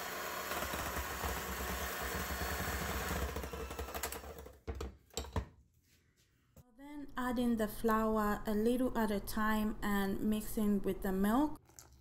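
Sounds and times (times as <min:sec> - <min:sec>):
electric hand mixer running: 0:00.0 - 0:04.6.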